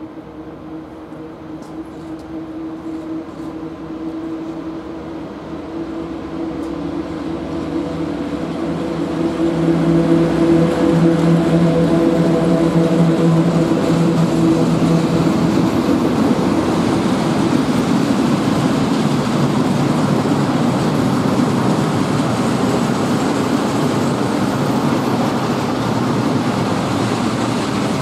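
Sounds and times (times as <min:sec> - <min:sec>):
electric locomotive hum: 0:00.0 - 0:28.0
train wheels rumbling on rails: 0:00.0 - 0:28.0.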